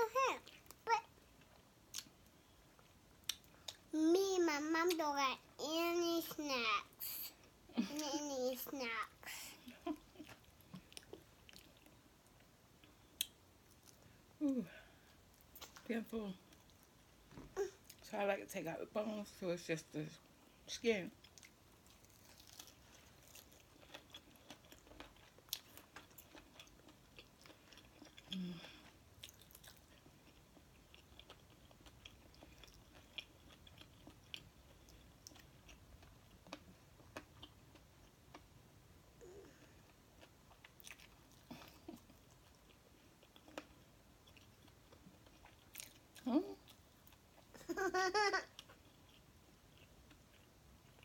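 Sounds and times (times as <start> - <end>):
chewing crunchy chicken skin: 21.2 - 38.5.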